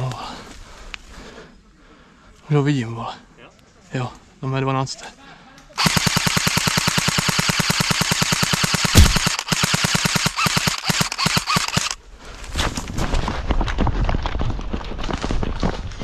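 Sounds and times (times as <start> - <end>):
airsoft rifle full-auto bursts: 5.8 - 12.0.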